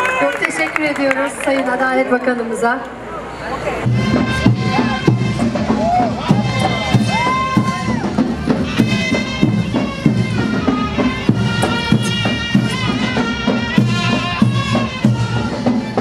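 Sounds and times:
drum beat: 3.8 - 16.0
shrill reed melody: 3.9 - 16.0.

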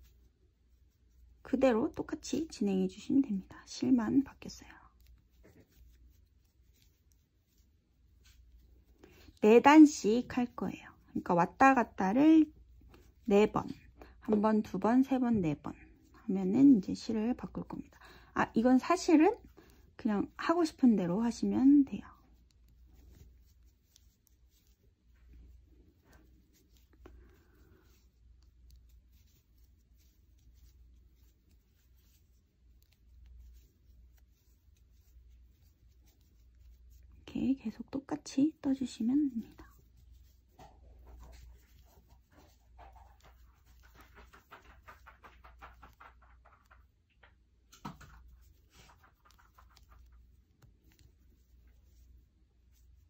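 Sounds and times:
yarn rustling through stitches: 0.0 - 53.0
crochet hook clicking through yarn: 41.2 - 52.0.

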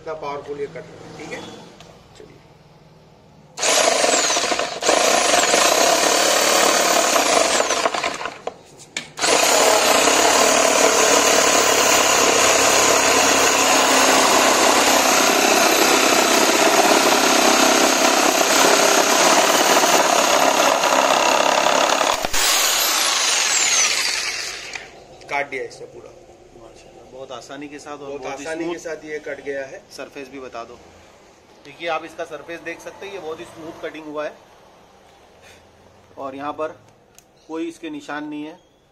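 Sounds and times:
electric jigsaw cutting wood: 3.6 - 8.5, 9.2 - 25.0.

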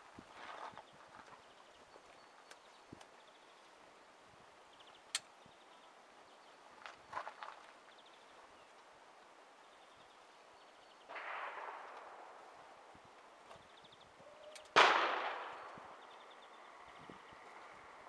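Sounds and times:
faint gunshot: 11.1 - 12.4, 14.7 - 15.9
loud rifle shot echoing: 11.1 - 12.6, 14.7 - 16.0.

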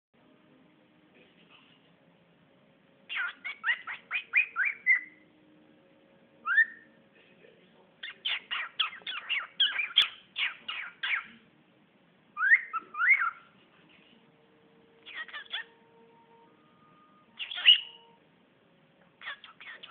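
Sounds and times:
cockatiel chirping and whistling: 3.1 - 5.2, 6.4 - 6.9, 8.0 - 11.3, 12.4 - 13.5, 15.0 - 15.8, 17.4 - 18.2, 19.2 - 19.9.

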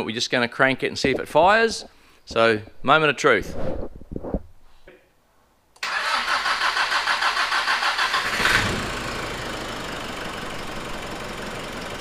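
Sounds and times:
diesel engine cranking and idling: 5.8 - 12.0.

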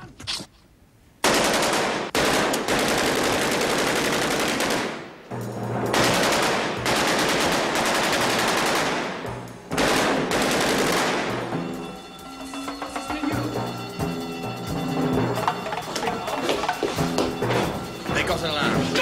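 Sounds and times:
rapid machine-gun fire: 1.2 - 5.1, 5.9 - 11.4
faint music score: 11.0 - 19.0.

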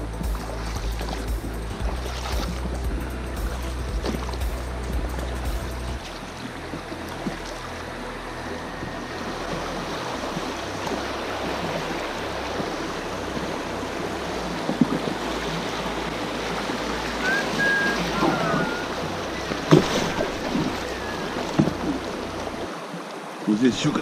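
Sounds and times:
river water rushing over rocks: 0.0 - 24.0
short high whistle: 17.2 - 19.0, 20.8 - 21.4.

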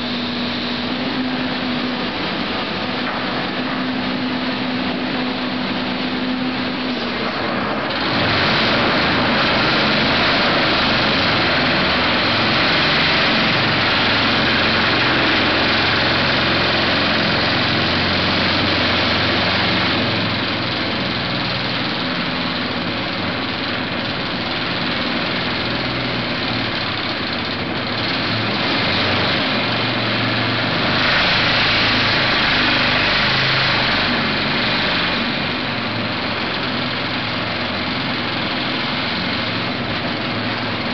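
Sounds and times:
vibratory hammer driving pile: 0.0 - 28.6
excavator engine under load: 0.0 - 40.9.

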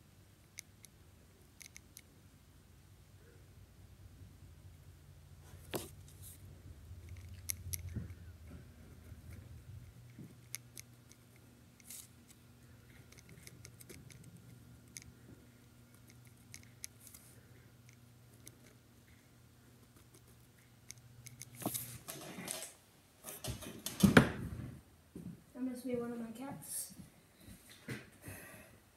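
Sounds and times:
faint steady hum: 0.0 - 28.9
rustles and knocks: 21.5 - 25.4.

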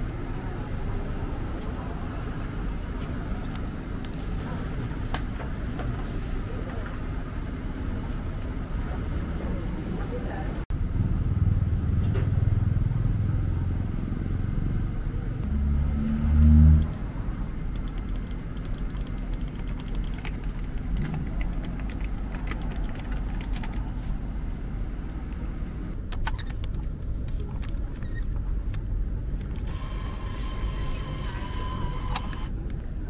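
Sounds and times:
steady low rumble: 10.6 - 29.7.

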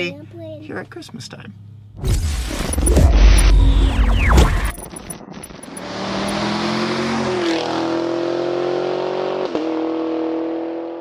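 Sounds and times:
engine-like drone rising in pitch: 2.4 - 9.8.

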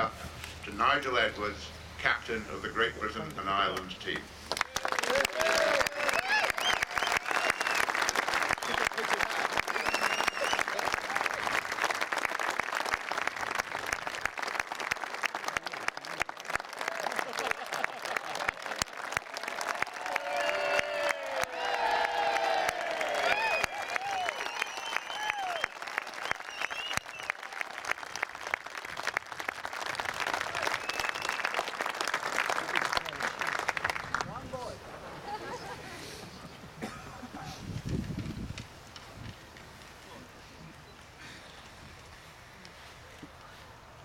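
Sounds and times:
crowd applauding: 4.5 - 34.5.

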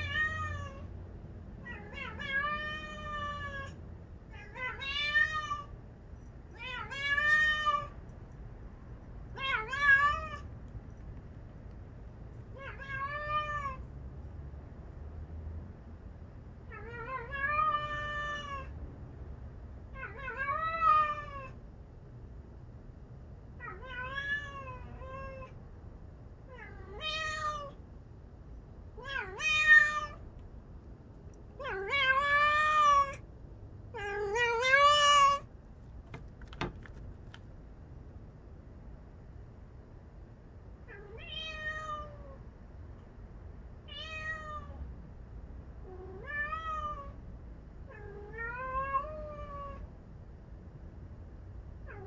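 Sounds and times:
cat meowing: 0.0 - 0.9, 1.6 - 5.8, 6.5 - 8.0, 9.3 - 10.5, 12.5 - 13.9, 16.7 - 18.7, 20.0 - 21.6, 23.6 - 25.6, 26.5 - 27.8, 29.0 - 30.2, 31.6 - 33.3, 33.9 - 35.5, 40.9 - 42.4, 43.9 - 44.8, 45.8 - 47.2, 47.9 - 49.9.

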